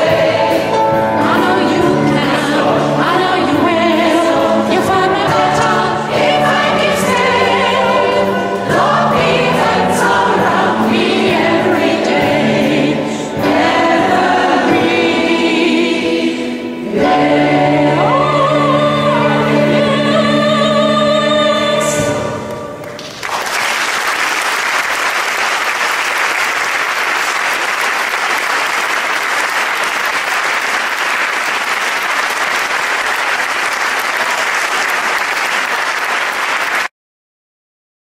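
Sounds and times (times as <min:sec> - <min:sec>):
choir singing: 0:00.0 - 0:23.0
audience applause: 0:22.9 - 0:36.9.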